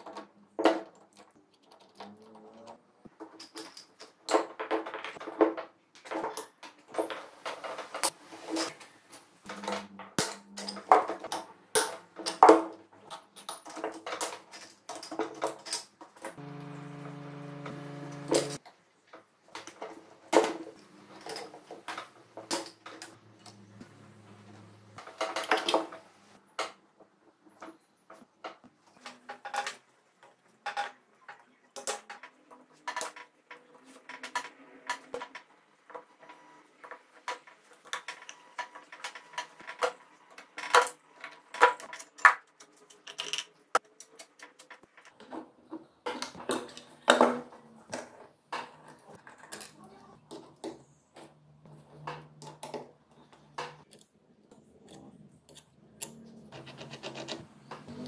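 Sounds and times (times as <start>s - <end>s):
metal tools and bolts clinking: 0.0s - 16.9s, 19.8s - 23.8s.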